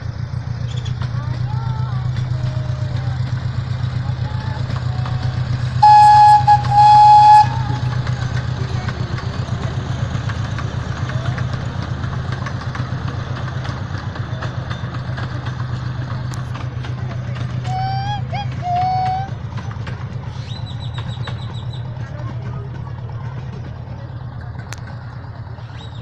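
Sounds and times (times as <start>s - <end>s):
miniature train engine droning: 0.0s - 26.0s
train whistle toots: 5.8s - 8.2s, 17.7s - 19.4s.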